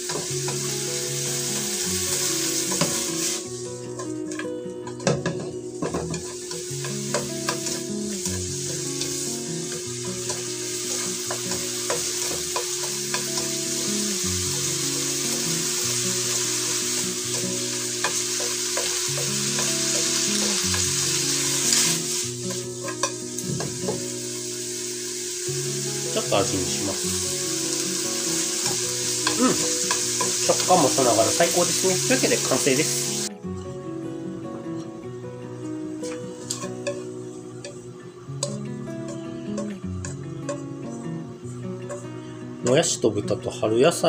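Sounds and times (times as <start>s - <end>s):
vegetables sizzling in a wok: 0.0s - 33.7s, 34.3s - 44.0s
chopsticks clicking on a pan: 38.4s - 40.6s.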